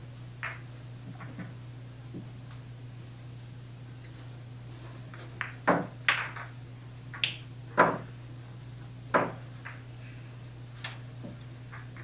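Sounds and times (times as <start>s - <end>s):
steady low hum: 0.0s - 12.0s
pool balls clacking: 0.4s - 2.3s, 5.0s - 8.2s, 9.1s - 9.9s, 10.8s - 12.0s.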